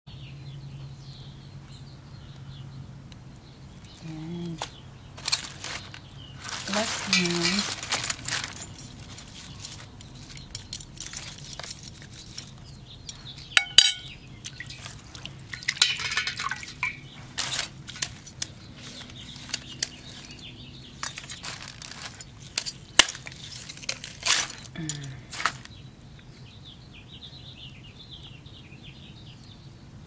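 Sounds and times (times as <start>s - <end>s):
knife clicking and scraping shells: 8.0s - 15.0s, 15.6s - 25.6s
ringing metal clink: 13.6s - 14.2s
water splashing in metal bowl: 13.6s - 17.6s.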